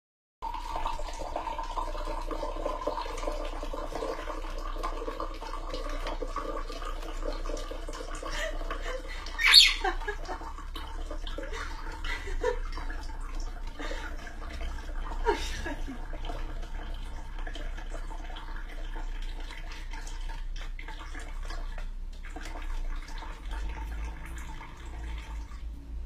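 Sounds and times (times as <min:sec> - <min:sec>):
parrot squawking: 0:09.3 - 0:10.0
short bird calls: 0:09.4 - 0:09.8.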